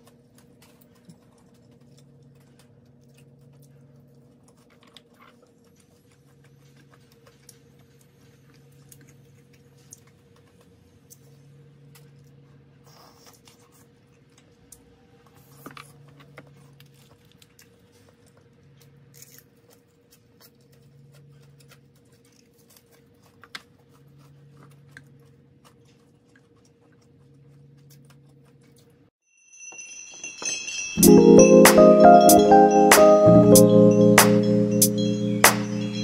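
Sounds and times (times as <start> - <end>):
chewing: 15.4 - 29.0
music with ringing tones: 29.4 - 36.0.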